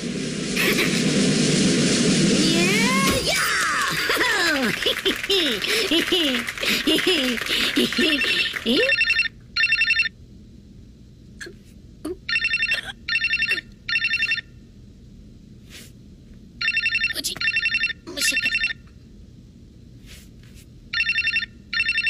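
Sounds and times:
telephone ringing with warbling trills: 7.9 - 10.1, 12.3 - 14.6, 16.6 - 18.9, 20.9 - 22.0.

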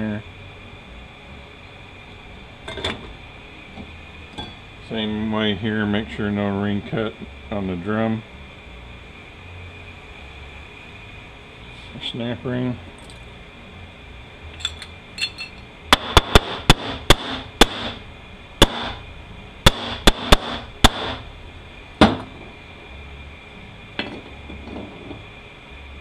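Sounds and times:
metal parts tapping and clinking: 14.5 - 15.7.

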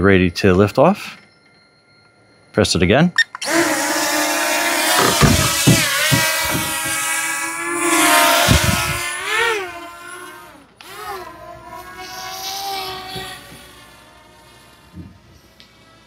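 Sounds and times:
drone motors whining: 3.2 - 16.0
low thumps: 4.8 - 9.1.

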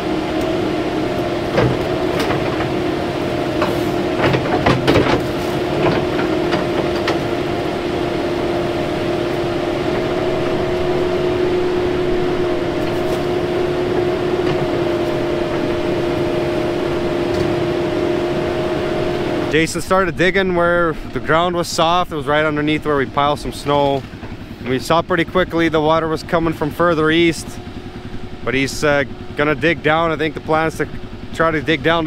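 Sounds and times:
excavator engine hum: 0.0 - 32.0.

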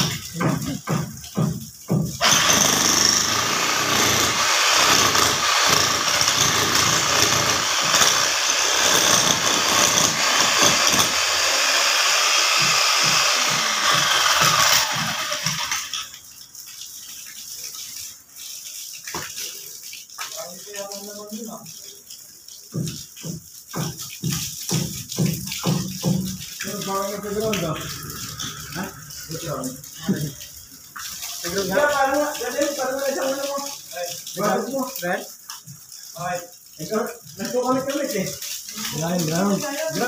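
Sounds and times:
power tool running: 2.2 - 16.0
background noise: 13.8 - 40.0.

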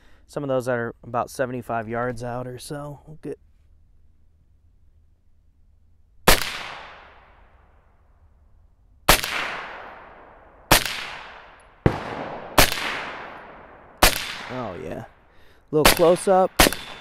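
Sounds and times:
suppressed pistol shots with echo: 6.2 - 7.4, 9.1 - 14.8, 15.8 - 17.0.

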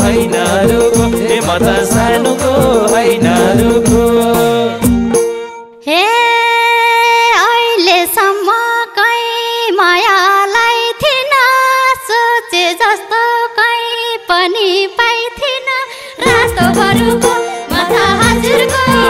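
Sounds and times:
folk melody with pitch bends: 16.2 - 19.0.

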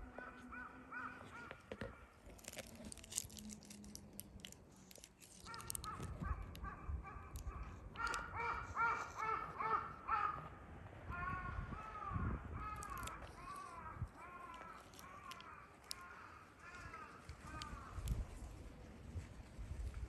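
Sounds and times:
crow cawing: 0.0 - 2.0, 5.4 - 18.0.

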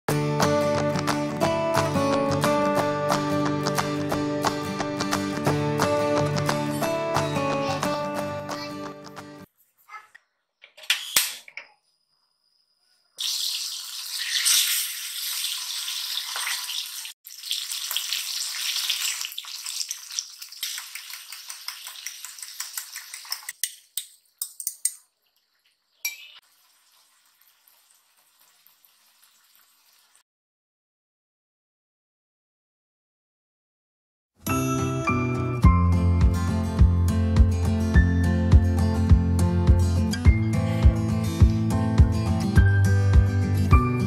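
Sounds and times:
oil sizzling and crackling: 13.2 - 30.2.

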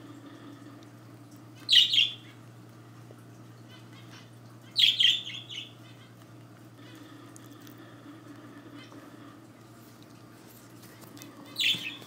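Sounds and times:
bird chirping: 1.7 - 2.3, 4.8 - 6.0, 11.6 - 12.0.

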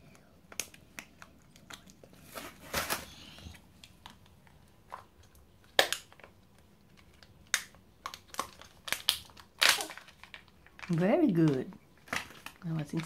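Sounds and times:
plastic capsule clicks and snaps: 3.8 - 11.6.

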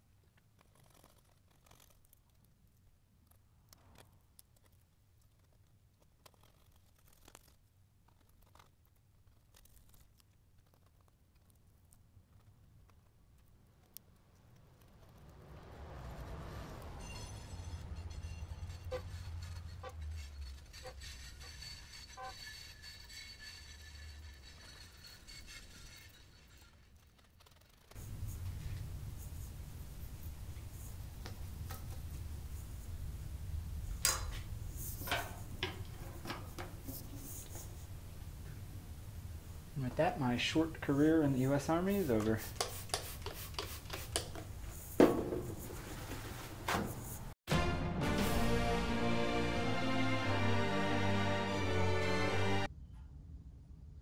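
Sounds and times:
scraping decal on glass: 0.4 - 2.5, 3.3 - 11.6, 17.0 - 32.2, 41.5 - 47.3
fingernails scratching decal off glass: 18.8 - 27.9.

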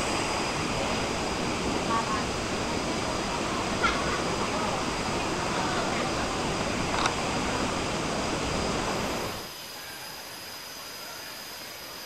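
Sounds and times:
waterfall rushing: 0.0 - 9.6.

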